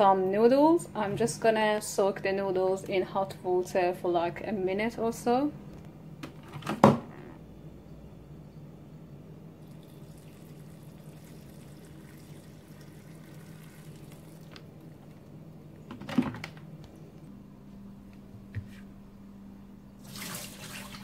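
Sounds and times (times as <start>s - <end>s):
hot water pouring into bowl: 9.6s - 14.6s, 20.0s - 21.0s.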